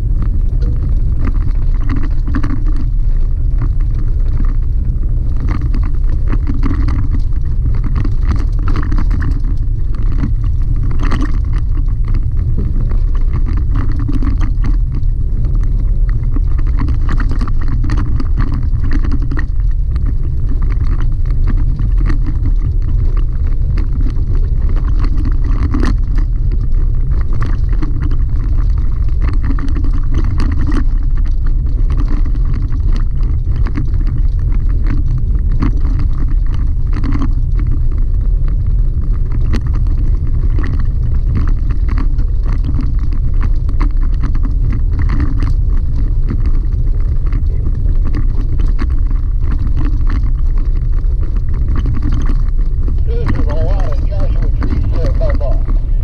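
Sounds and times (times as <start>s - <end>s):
low rumble of road noise: 0.0s - 56.0s
stones ticking and cab rattles: 0.0s - 56.0s.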